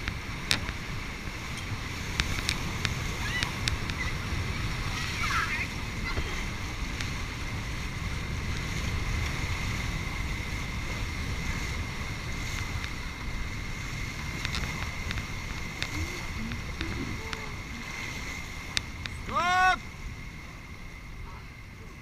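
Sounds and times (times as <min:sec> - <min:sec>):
paddling: 0:00.0 - 0:22.0
whitewater rapids rushing: 0:00.0 - 0:22.0
wind rumbling on microphone: 0:00.0 - 0:22.0
faint high whine: 0:11.5 - 0:22.0.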